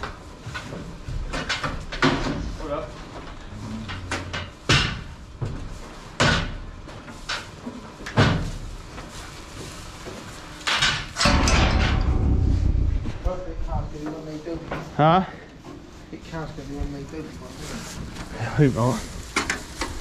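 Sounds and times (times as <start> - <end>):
loud bangs and knocks: 10.9 - 14.2.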